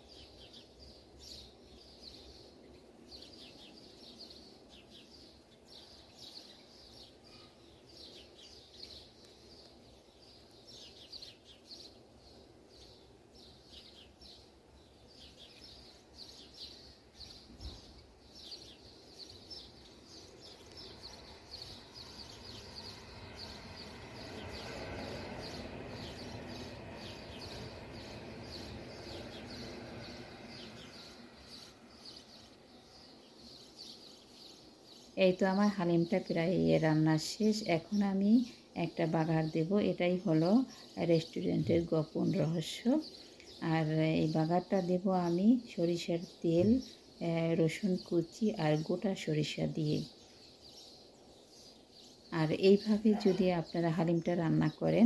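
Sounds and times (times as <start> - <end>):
high chirp-like ticks: 8.8 - 10.8, 20.2 - 31.8.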